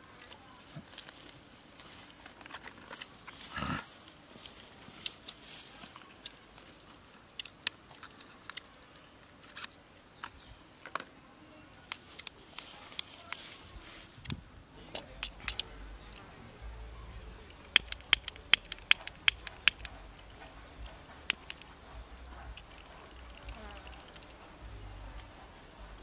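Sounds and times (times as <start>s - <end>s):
lighter clicking: 17.6s - 20.0s.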